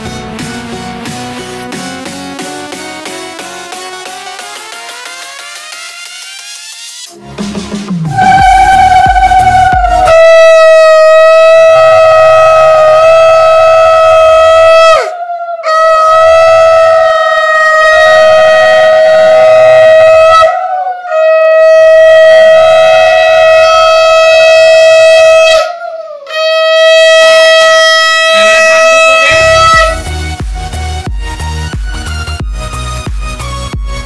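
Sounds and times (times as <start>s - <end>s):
music with a beat: 0.0s - 10.3s, 29.3s - 34.0s
conch shell blasts: 26.3s - 30.0s.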